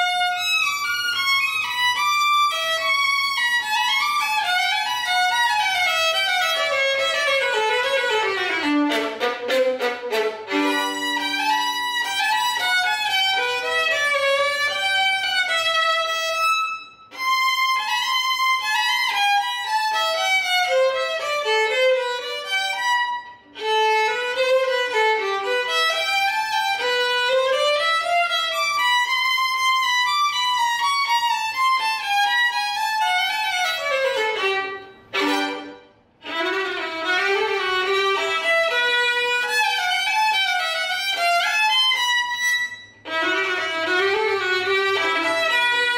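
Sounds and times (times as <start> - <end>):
solo violin melody: 0.0 - 45.9.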